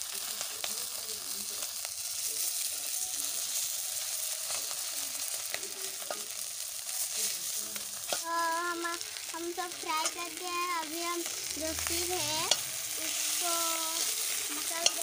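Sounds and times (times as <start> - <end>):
fish sizzling in hot oil: 0.0 - 15.0
metal spoon clicking on pan: 12.5 - 12.7, 14.0 - 15.0.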